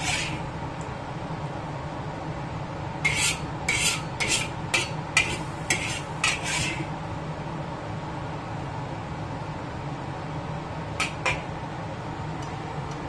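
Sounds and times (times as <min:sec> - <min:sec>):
metal spatula scraping a wok: 0:00.0 - 0:00.4, 0:03.0 - 0:06.9.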